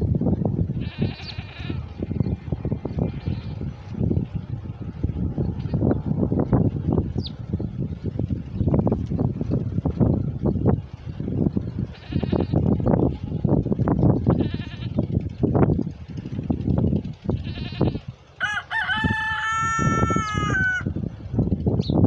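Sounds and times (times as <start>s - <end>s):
sparrows chirping: 0.0s - 13.5s, 21.6s - 22.0s
low rough rumbling and bumping: 0.0s - 18.0s
rooster crowing: 18.4s - 21.0s.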